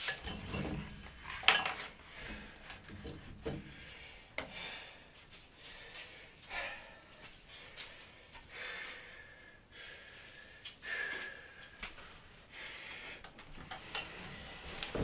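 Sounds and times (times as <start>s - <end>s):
metal and wood clanking: 0.0s - 3.7s.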